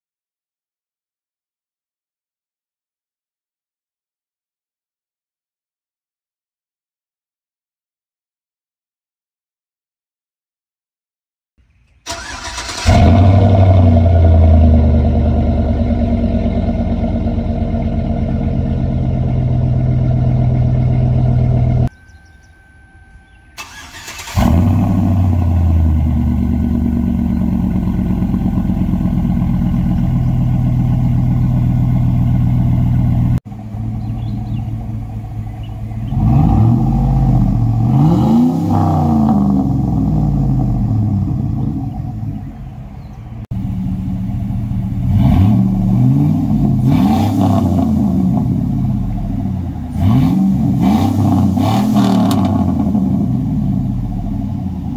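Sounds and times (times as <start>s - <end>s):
engine starting: 11.9s - 13.8s, 23.5s - 25.8s, 51.1s - 52.7s
engine revving: 12.0s - 21.9s, 23.2s - 54.9s
engine idling: 12.0s - 38.2s, 39.8s - 46.9s, 48.4s - 50.2s, 50.8s - 54.9s.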